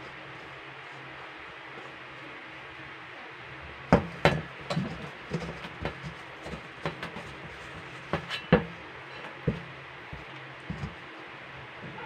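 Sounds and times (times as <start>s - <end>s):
spatula scraping metal bowl: 4.6s - 11.0s.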